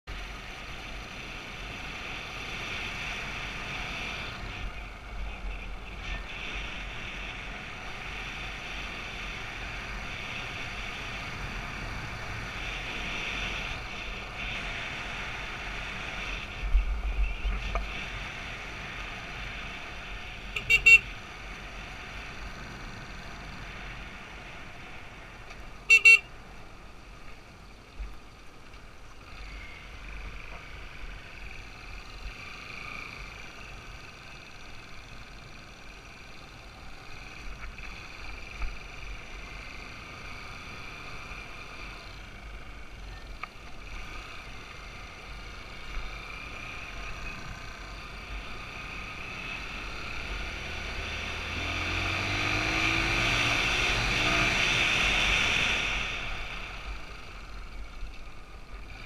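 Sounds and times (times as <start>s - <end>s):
horn toots: 20.5s - 21.1s, 25.8s - 26.3s.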